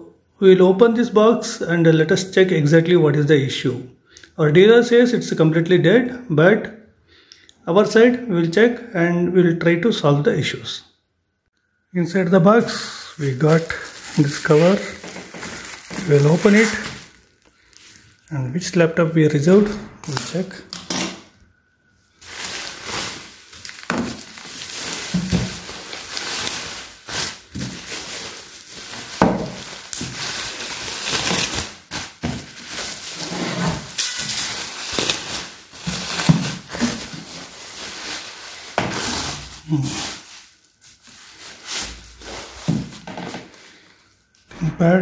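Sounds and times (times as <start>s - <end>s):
bubble wrap crinkling: 12.4s - 18.3s, 22.1s - 44.4s.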